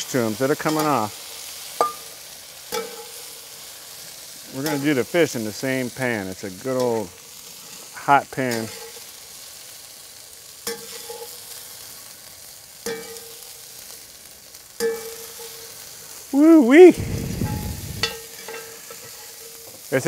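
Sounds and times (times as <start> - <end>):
vegetables sizzling in hot pan: 0.0 - 20.0
utensil clinking against pan: 2.7 - 3.1, 12.8 - 13.4, 17.5 - 19.5
man calling out: 16.3 - 18.0.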